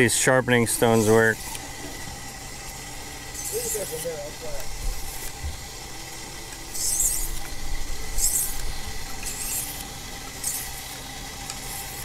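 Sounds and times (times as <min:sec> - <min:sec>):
knife scraping on whetstone: 0:06.7 - 0:07.5, 0:08.1 - 0:10.9.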